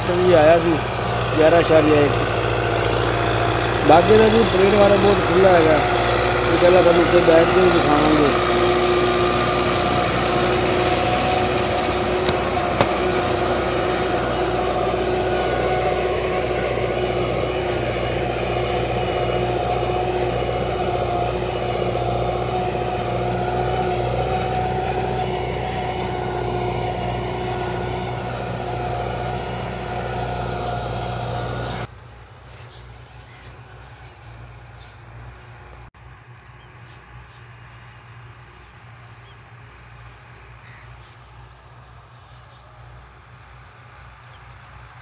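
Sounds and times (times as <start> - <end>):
tractor diesel engine running: 0.0 - 35.9.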